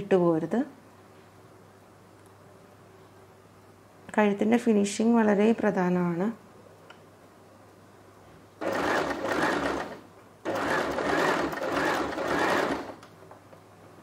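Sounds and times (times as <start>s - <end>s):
electric sewing machine stitching: 8.6s - 13.0s.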